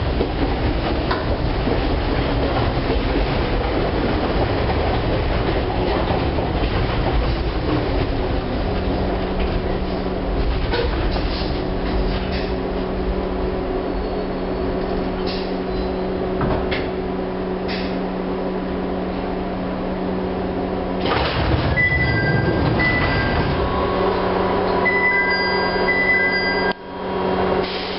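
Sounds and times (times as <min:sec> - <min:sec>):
train electrical hum: 0:00.0 - 0:27.9
sliding doors opening: 0:21.0 - 0:24.0.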